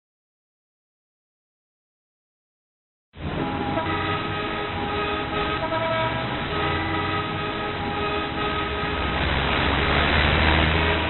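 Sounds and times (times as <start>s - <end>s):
car horns honking: 3.2s - 11.0s
low rumble of engines: 3.2s - 11.0s.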